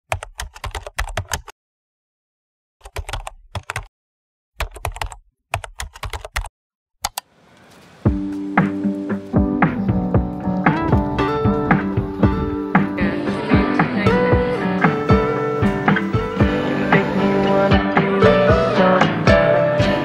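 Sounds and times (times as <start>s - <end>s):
keyboard typing clicks: 0.1s - 1.5s, 2.8s - 3.9s, 4.6s - 7.7s
music: 8.0s - 20.0s.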